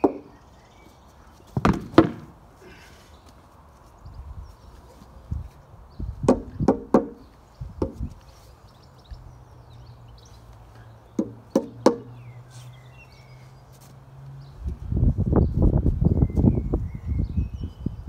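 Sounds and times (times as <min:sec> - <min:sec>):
plastic bat knocking on paving: 0:01.6 - 0:02.3, 0:06.3 - 0:07.2, 0:11.2 - 0:12.1.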